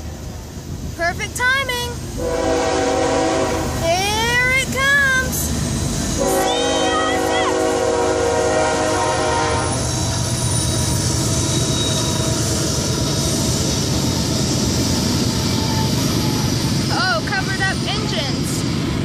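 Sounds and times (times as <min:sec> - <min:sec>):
train rumbling past: 0:00.0 - 0:19.0
locomotive air horn: 0:02.2 - 0:03.8, 0:06.2 - 0:09.8.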